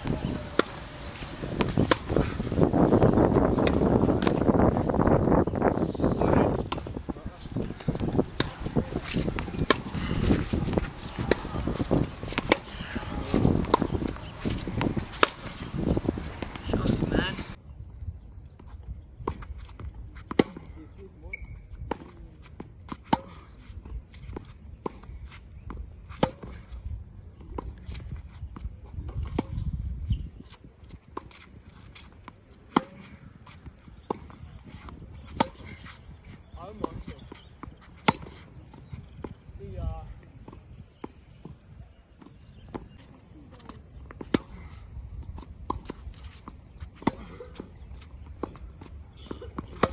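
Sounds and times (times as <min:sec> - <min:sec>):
ball bouncing on hard court: 0:00.0 - 0:04.5, 0:07.6 - 0:17.6, 0:48.4 - 0:49.9
tennis ball struck with racket: 0:00.0 - 0:04.5, 0:06.5 - 0:17.6, 0:37.6 - 0:38.4, 0:45.7 - 0:49.9
shoe scuffs: 0:00.0 - 0:04.9, 0:06.2 - 0:17.6.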